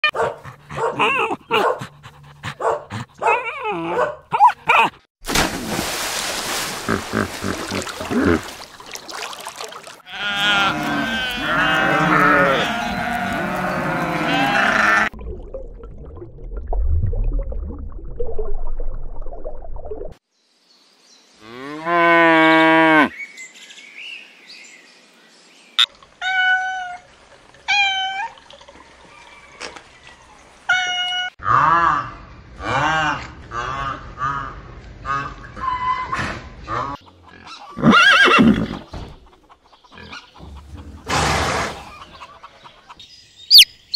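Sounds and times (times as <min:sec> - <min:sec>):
dog barking: 0:00.0 - 0:01.9, 0:02.6 - 0:04.9
goats bleating: 0:10.0 - 0:15.1
long animal call: 0:10.1 - 0:15.2.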